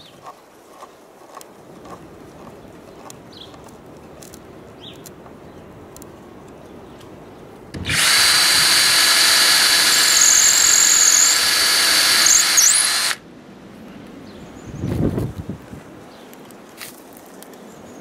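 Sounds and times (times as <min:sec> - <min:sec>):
cordless drill whining into wood: 0:07.8 - 0:13.2.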